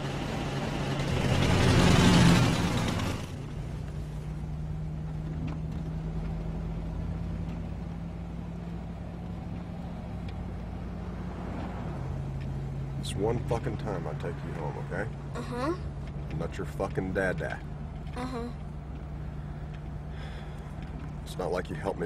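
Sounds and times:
car engine hum from inside: 0.0 - 22.0
car whooshing past: 10.5 - 13.0.

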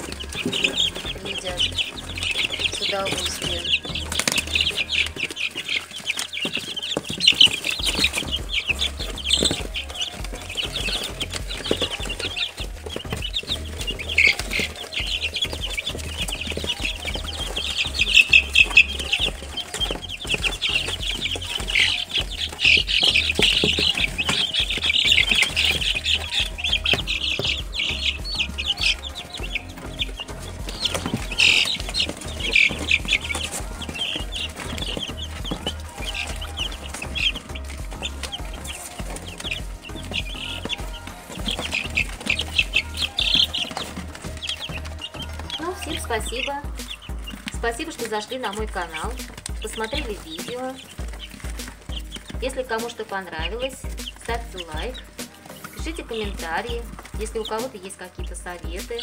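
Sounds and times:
chicks peeping: 0.0 - 59.0.

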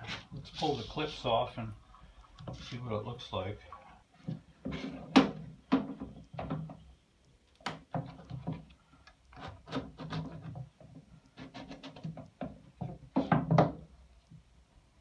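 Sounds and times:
frame scraping on plywood board: 4.3 - 5.2.

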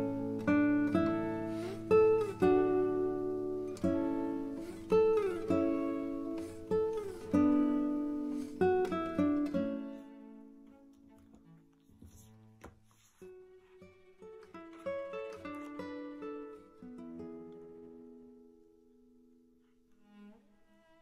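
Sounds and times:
solo guitar plucked notes: 0.0 - 12.6.

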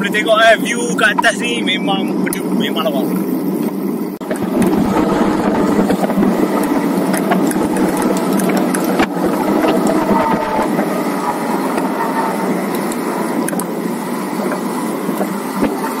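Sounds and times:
wind rushing over microphone: 0.4 - 16.0
sharp knocks from road: 15.2 - 15.9.

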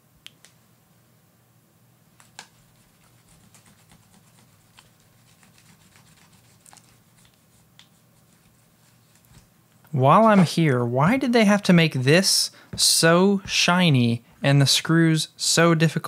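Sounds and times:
cloth rubbing on metal: 2.5 - 10.6.

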